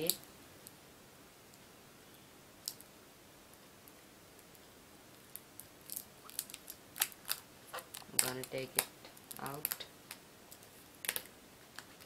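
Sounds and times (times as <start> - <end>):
plastic film clicks and crackles: 5.3 - 12.0.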